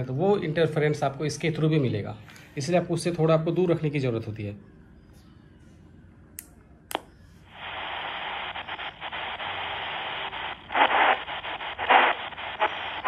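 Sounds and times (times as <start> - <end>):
radio static hiss: 6.9 - 13.0.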